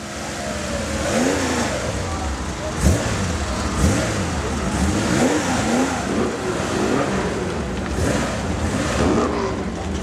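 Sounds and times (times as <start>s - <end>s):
car engine running: 0.0s - 10.0s.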